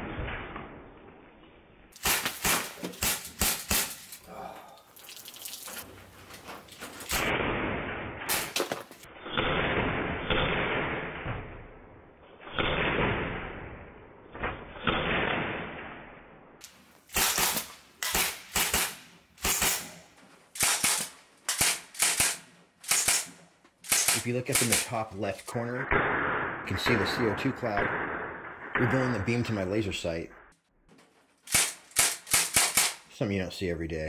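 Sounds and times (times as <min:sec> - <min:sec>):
pellet rifle shots: 0:02.0 - 0:04.2, 0:17.1 - 0:29.6, 0:31.5 - 0:33.1.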